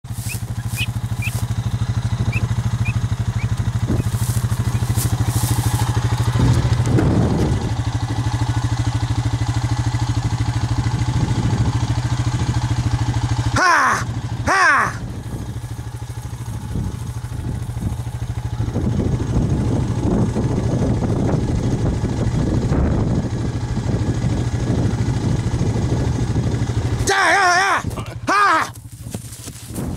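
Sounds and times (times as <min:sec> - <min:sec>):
vehicle engine running: 0:00.0 - 0:29.9
rising and falling voice calls: 0:13.5 - 0:15.1, 0:27.0 - 0:28.8.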